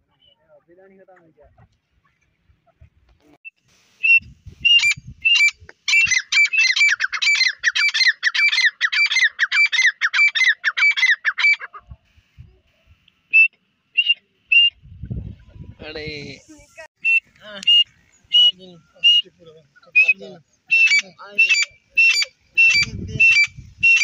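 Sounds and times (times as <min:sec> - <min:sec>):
francolin calling: 0:04.0 - 0:11.8, 0:13.3 - 0:14.8, 0:17.0 - 0:24.0.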